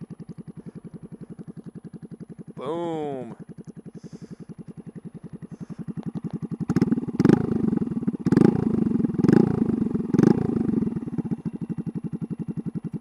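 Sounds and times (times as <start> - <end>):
motorcycle engine idling and revving: 0.0 - 13.0.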